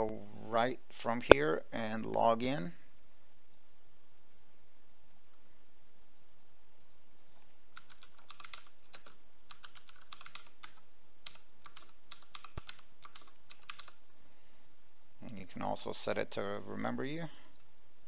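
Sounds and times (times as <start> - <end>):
keyboard typing: 7.7 - 14.0.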